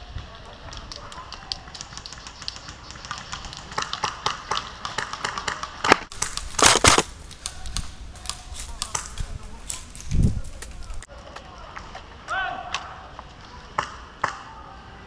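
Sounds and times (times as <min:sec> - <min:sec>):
airsoft guns firing: 0:01.5 - 0:09.8.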